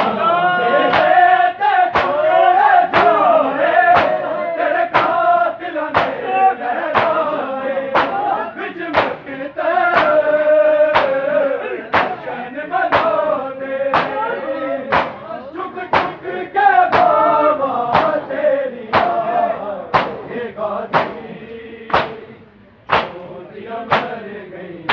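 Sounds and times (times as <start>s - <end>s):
men chanting: 0.0s - 24.9s
hands slapping chests: 1.9s - 2.2s, 3.9s - 4.2s, 5.9s - 6.2s, 7.0s - 7.2s, 8.0s - 8.2s, 8.9s - 9.2s, 10.9s - 11.2s, 11.9s - 12.2s, 12.9s - 13.2s, 13.9s - 14.2s, 14.9s - 15.2s, 17.9s - 18.2s, 19.9s - 20.2s, 20.9s - 21.2s, 21.9s - 22.2s, 22.9s - 23.3s, 23.9s - 24.2s.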